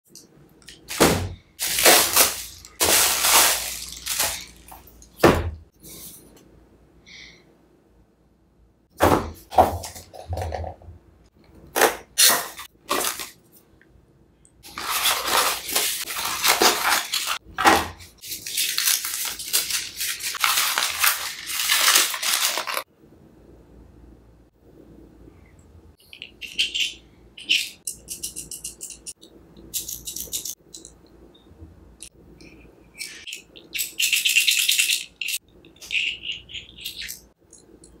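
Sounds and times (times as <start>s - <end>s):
cardboard and packaging rustling: 0.9s - 5.0s, 11.8s - 13.4s, 14.7s - 22.9s
knife slitting packing tape: 11.8s - 13.3s.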